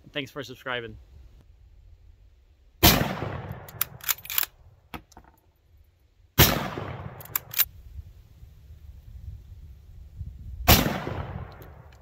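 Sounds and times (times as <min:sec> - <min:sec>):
rifle shots with echo: 0:02.8 - 0:04.4, 0:06.4 - 0:07.6, 0:10.7 - 0:11.9
rifle bolt clicking: 0:03.6 - 0:04.6, 0:07.2 - 0:07.7.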